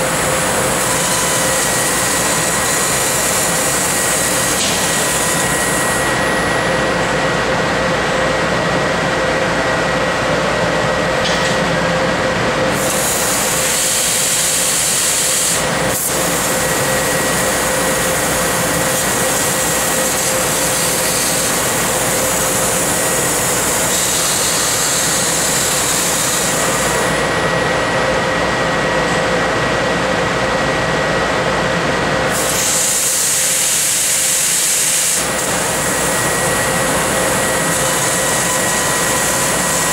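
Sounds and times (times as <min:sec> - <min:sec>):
laser cutting machine hissing and humming: 0:00.0 - 0:39.9.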